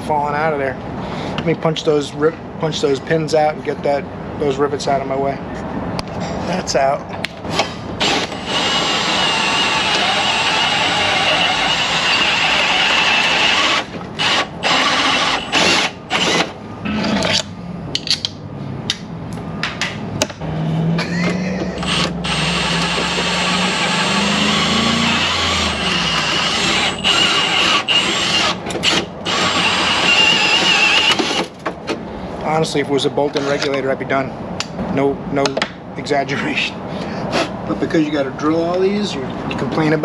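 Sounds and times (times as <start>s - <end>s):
cordless drill drilling rivets: 7.5s - 16.6s, 21.8s - 31.6s.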